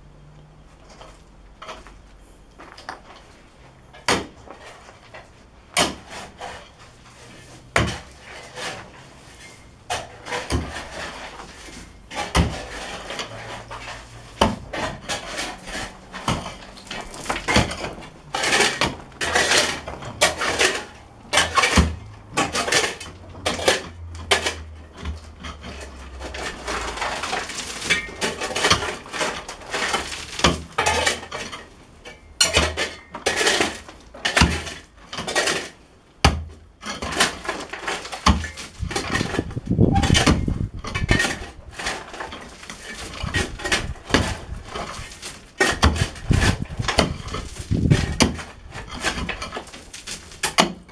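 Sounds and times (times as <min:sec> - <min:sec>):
stones clattering: 0:14.4 - 0:20.8.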